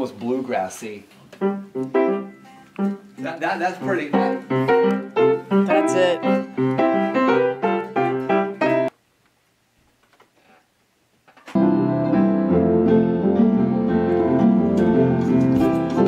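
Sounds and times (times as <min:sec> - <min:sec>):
piano and guitar music: 0:01.3 - 0:08.9, 0:11.5 - 0:16.0
piano chords: 0:01.4 - 0:08.9, 0:11.6 - 0:16.0.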